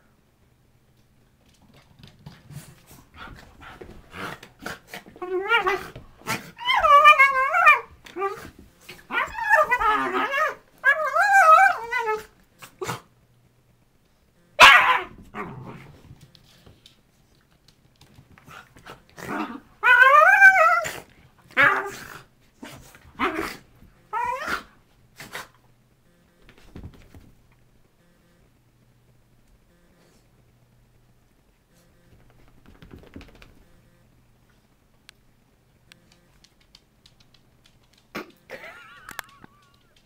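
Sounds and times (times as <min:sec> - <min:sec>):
dogs whining: 0:05.2 - 0:08.5, 0:09.1 - 0:12.3, 0:23.2 - 0:24.7
dogs barking: 0:14.6 - 0:15.1
dogs growling: 0:18.4 - 0:25.6.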